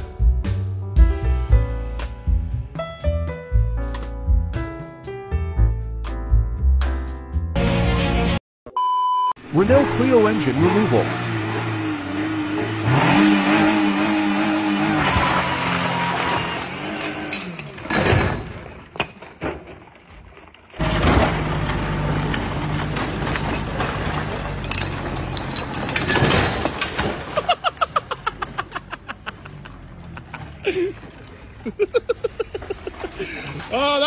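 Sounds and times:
car engine revving hard: 0:09.6 - 0:17.3.

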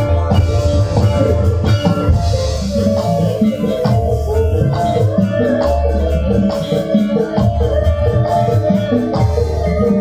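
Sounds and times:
bass line: 0:00.0 - 0:10.0
drums: 0:00.0 - 0:10.0
gamelan music: 0:00.0 - 0:10.0
woman singing into a microphone: 0:02.7 - 0:10.0.

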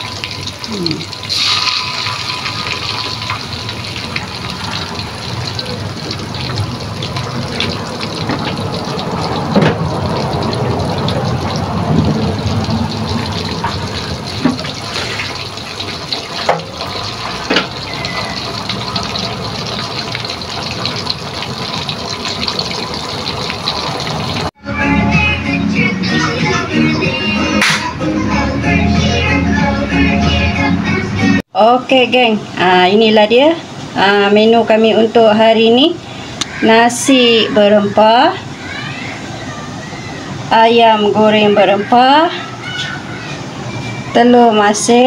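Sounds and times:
oil popping: 0:00.0 - 0:24.5
chicken deep-frying in oil: 0:00.0 - 0:24.6, 0:31.9 - 0:45.0.

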